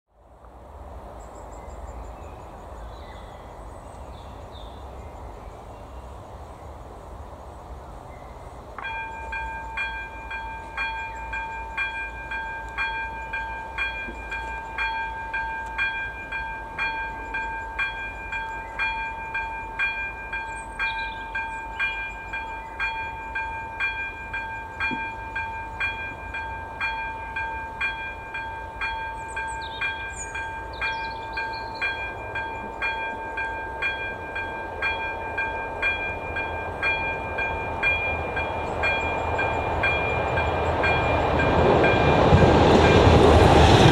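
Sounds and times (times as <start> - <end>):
level crossing warning bell: 8.8 - 43.8.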